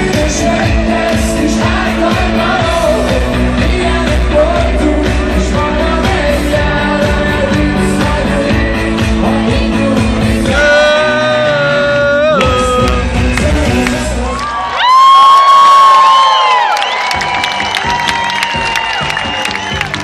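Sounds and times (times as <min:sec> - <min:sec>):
live rock band with singer: 0:00.0 - 0:14.8.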